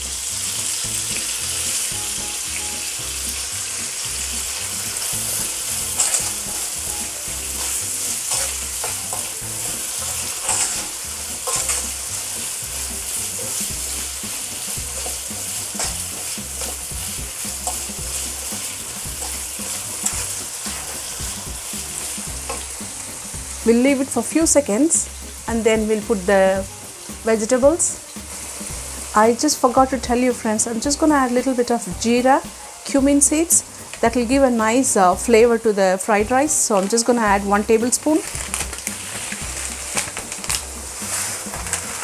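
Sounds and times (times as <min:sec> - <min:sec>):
onions sizzling in hot oil: 0:00.0 - 0:42.0
spatula scraping pan: 0:03.7 - 0:24.0, 0:38.2 - 0:42.0.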